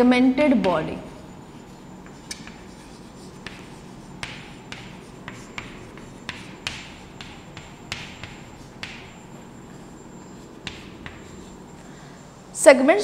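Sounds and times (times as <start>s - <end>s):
chalk scratching: 1.1s - 12.1s
chalk tapping on chalkboard: 1.6s - 12.0s.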